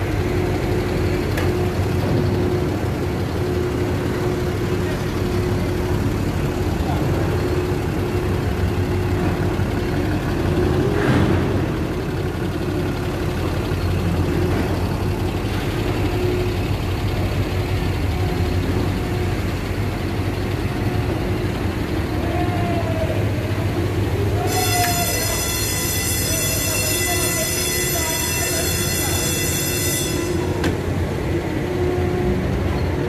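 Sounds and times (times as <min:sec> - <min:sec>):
diesel engine running: 0:00.0 - 0:33.0.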